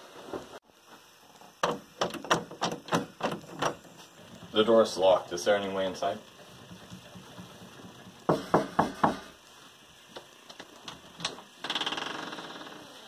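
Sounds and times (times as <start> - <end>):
knocking on wooden door: 6.9 - 9.3.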